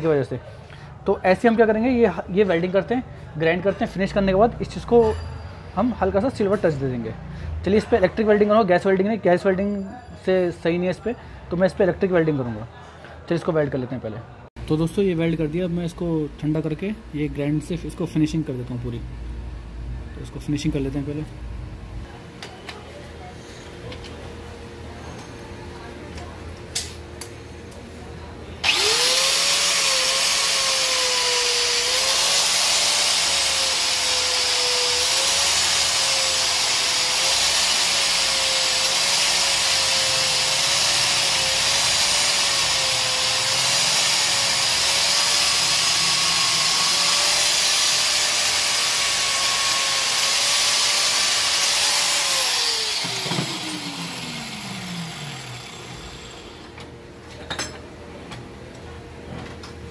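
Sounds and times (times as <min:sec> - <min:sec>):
electric grinder grinding metal: 0:28.6 - 0:56.7.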